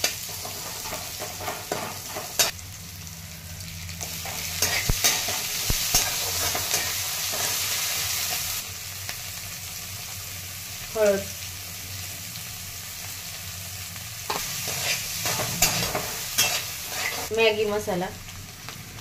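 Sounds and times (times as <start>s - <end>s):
food sizzling in hot oil: 0.0s - 19.0s
spatula scraping a pan: 4.2s - 7.6s, 14.3s - 17.3s.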